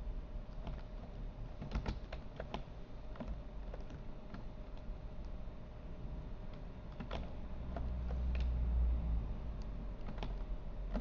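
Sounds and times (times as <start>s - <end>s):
steady low hum: 0.0s - 11.0s
keyboard and mouse clicks: 0.5s - 5.4s, 6.5s - 8.6s, 9.6s - 11.0s.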